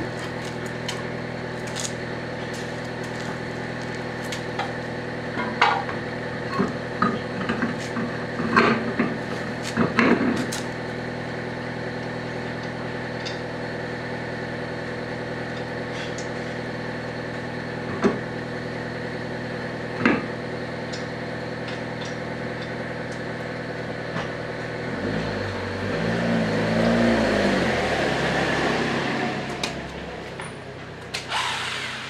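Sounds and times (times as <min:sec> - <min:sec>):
wavering low hum: 0:00.0 - 0:12.9
steady mechanical hum: 0:00.0 - 0:32.0.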